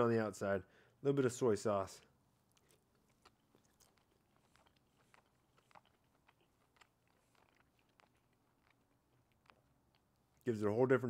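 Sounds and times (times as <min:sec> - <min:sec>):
soft mouth clicks of chewing: 0:02.4 - 0:10.5.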